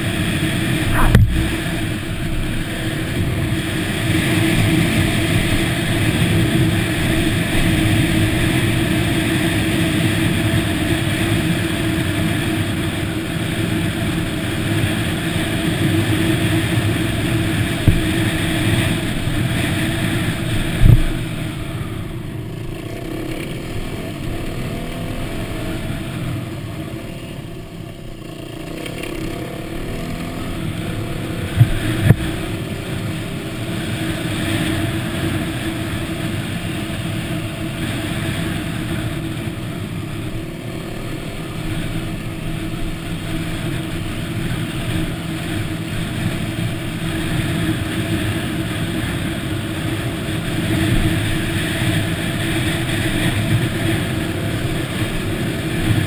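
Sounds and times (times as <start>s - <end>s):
dirt bike engine running: 0.0s - 56.0s
sharp thumps: 0.8s - 2.4s.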